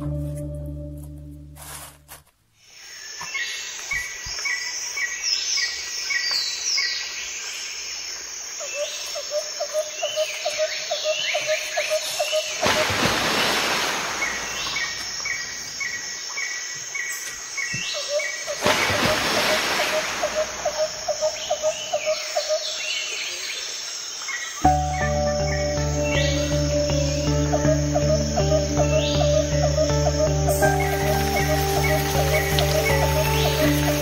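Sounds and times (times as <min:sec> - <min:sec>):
music: 0:00.0 - 0:02.1, 0:24.6 - 0:34.0
steady hiss: 0:12.1 - 0:16.3.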